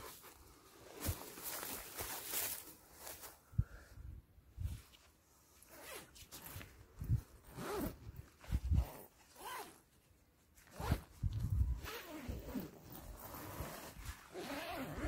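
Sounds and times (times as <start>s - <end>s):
zip being pulled open: 5.7s - 6.2s, 7.4s - 9.9s, 10.6s - 15.0s.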